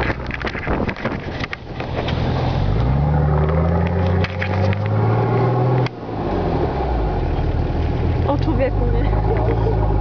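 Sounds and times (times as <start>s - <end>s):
diesel engine revving: 1.7s - 10.0s.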